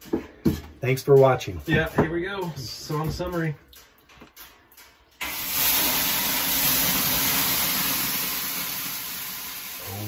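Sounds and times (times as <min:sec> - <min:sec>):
water hissing on hot rocks: 0:05.2 - 0:10.0.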